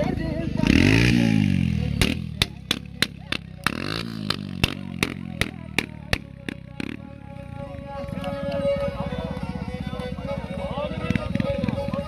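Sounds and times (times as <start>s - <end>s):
motor engine revving: 0.0s - 8.8s.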